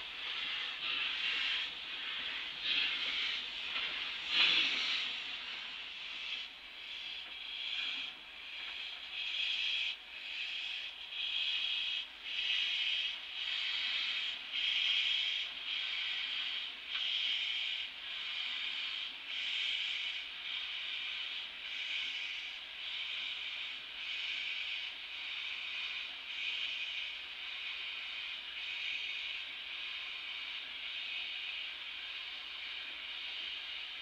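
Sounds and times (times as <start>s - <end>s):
steam locomotive hissing puffs: 0.0s - 34.0s.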